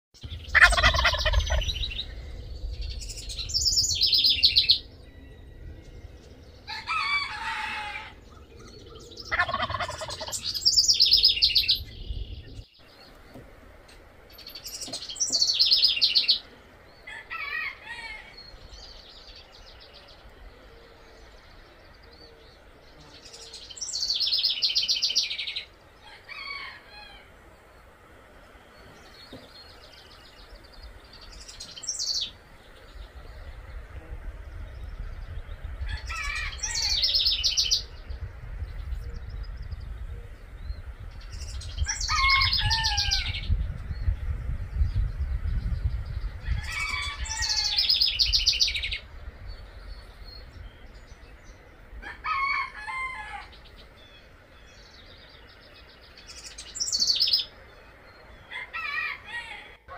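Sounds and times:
wind rumble on microphone: 0:00.2 - 0:59.6
turkey gobbling: 0:00.5 - 0:01.7, 0:09.3 - 0:10.4.

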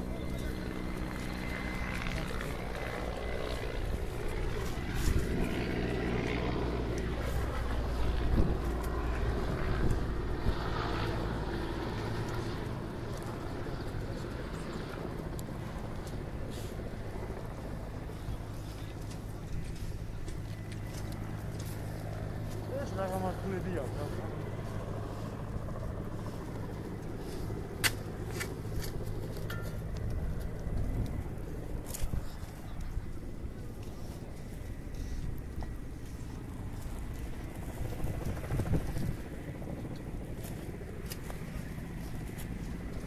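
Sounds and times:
low engine drone: 0:00.0 - 0:43.0
wind noise on microphone: 0:07.4 - 0:10.8, 0:37.5 - 0:39.8.

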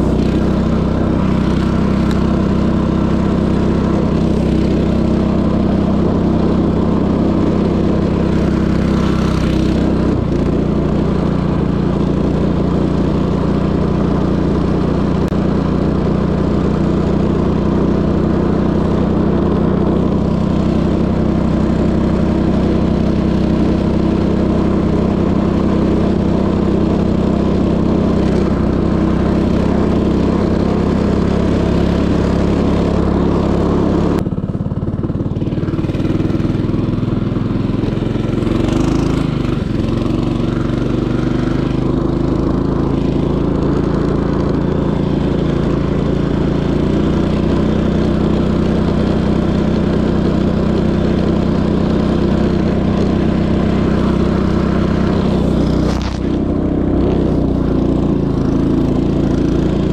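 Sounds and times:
small engine running: 0:00.0 - 0:59.9.

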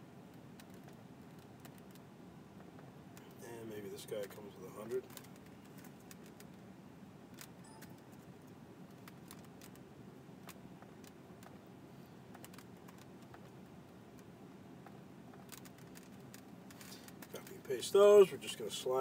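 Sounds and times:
low background hum: 0:00.0 - 0:19.0
keyboard and mouse clicks: 0:00.3 - 0:02.0, 0:07.4 - 0:08.2, 0:12.3 - 0:13.5.

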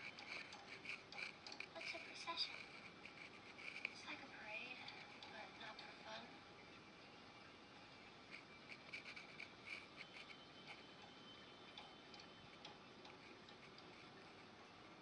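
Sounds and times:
pencil scratching on paper: 0:00.0 - 0:05.8, 0:08.2 - 0:10.9, 0:13.1 - 0:14.5.

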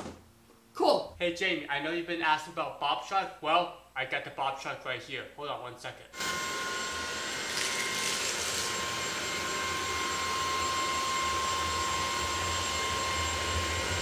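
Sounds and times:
vacuum cleaner motor whine: 0:06.2 - 0:14.0.

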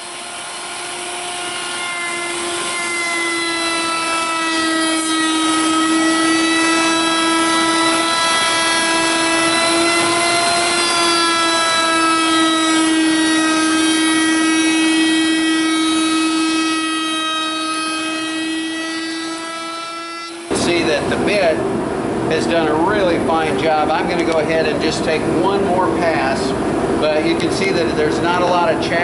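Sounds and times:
router whining: 0:00.0 - 0:21.2.

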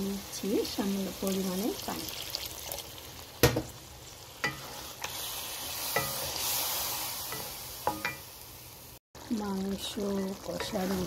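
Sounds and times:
meat paste sizzling in a pan: 0:00.0 - 0:11.0.

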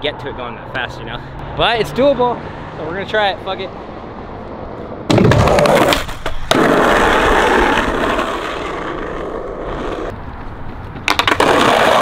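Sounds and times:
skateboard wheels rolling on asphalt: 0:04.8 - 0:12.0.

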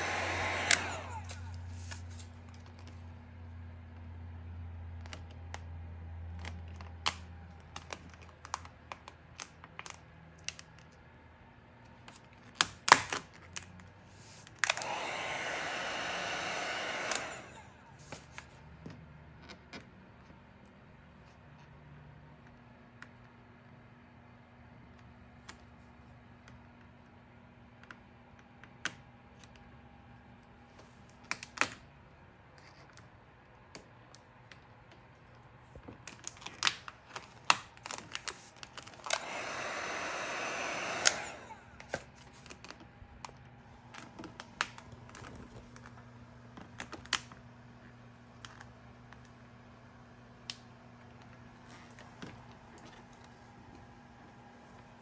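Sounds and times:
heat gun blowing: 0:00.0 - 0:02.3, 0:14.2 - 0:18.2, 0:38.8 - 0:42.0.

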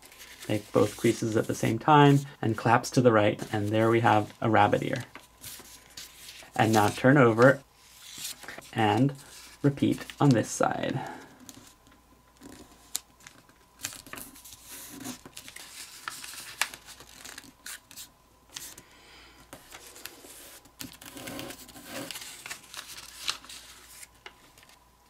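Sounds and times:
paper rustling and crinkling: 0:00.0 - 0:18.8, 0:19.5 - 0:24.8
sharp paper crackles: 0:03.4 - 0:10.4, 0:12.4 - 0:18.8, 0:19.6 - 0:24.8.

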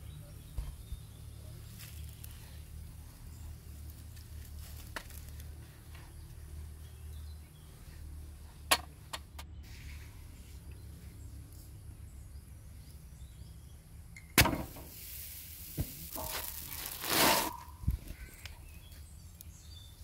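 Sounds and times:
rustling swish: 0:16.2 - 0:17.8.

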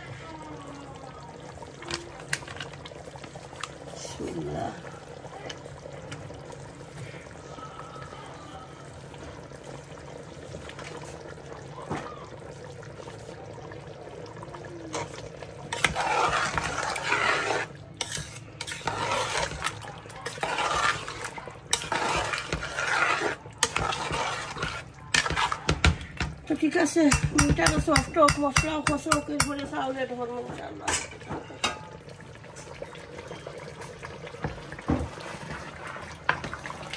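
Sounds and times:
stirring and scraping in pot: 0:01.8 - 0:07.6, 0:09.1 - 0:11.5, 0:14.8 - 0:36.9.

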